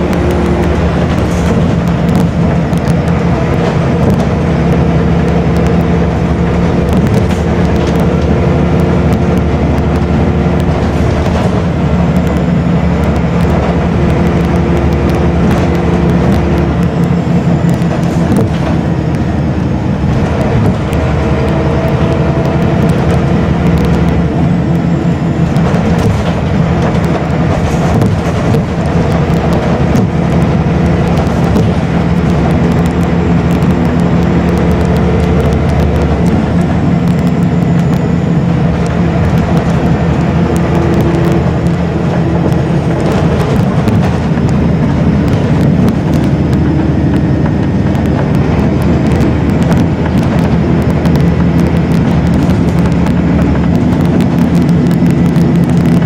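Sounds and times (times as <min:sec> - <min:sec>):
bodywork rattles and clicks: 0:00.0 - 0:56.0
bus engine running: 0:00.0 - 0:56.0.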